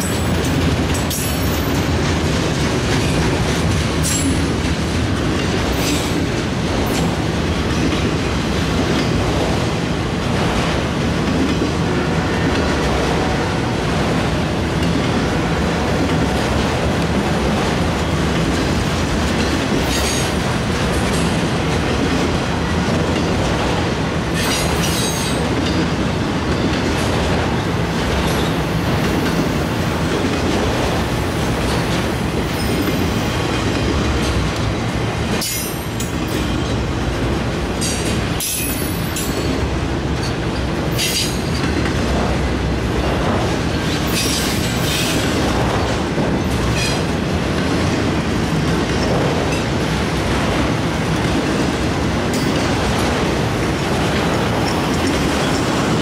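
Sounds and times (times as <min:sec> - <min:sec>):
train wheels rumbling on rail: 0:00.0 - 0:56.0.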